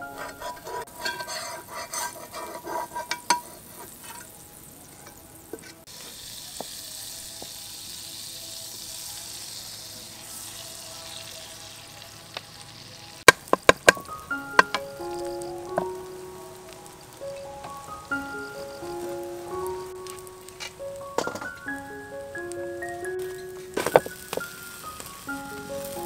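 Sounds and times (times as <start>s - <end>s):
food sizzling in a pan: 0.0s - 26.0s.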